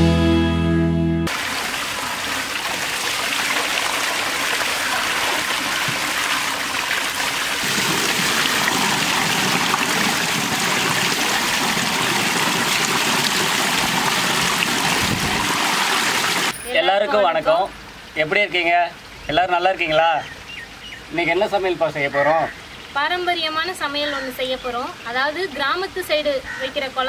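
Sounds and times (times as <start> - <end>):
water pouring into tank: 1.3 - 16.6
water splashing over person: 1.3 - 16.7.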